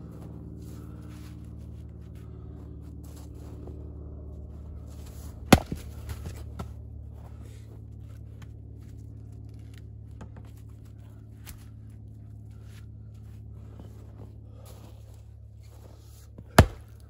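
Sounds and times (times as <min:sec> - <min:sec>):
low steady hum: 0:00.0 - 0:17.0
axe cracking firewood: 0:05.4 - 0:06.6, 0:16.4 - 0:17.0.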